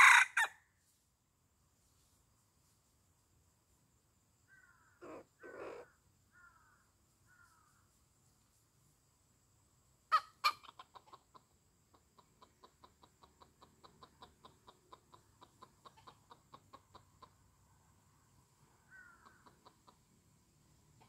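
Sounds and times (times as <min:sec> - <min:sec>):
chicken sharp loud calls: 0:00.0 - 0:00.5, 0:04.9 - 0:06.0, 0:10.1 - 0:11.4
chickens clucking: 0:05.0 - 0:05.9, 0:10.1 - 0:17.7, 0:19.1 - 0:21.0.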